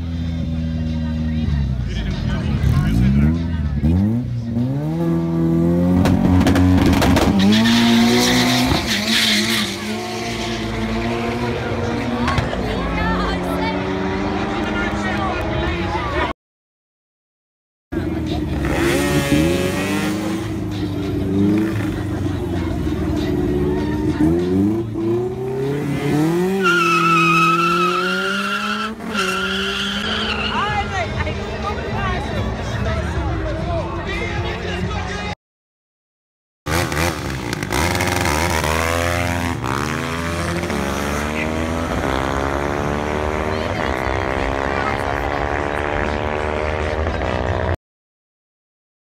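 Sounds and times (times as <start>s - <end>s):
car engine revving: 1.9s - 15.9s, 18.0s - 30.8s, 36.7s - 47.8s
tyres squealing: 26.5s - 31.0s
truck engine revving: 36.7s - 47.6s.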